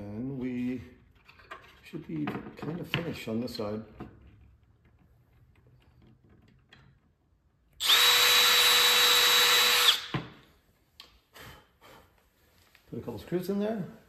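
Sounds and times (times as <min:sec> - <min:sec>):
cordless drill drilling into wood: 0:07.8 - 0:10.2.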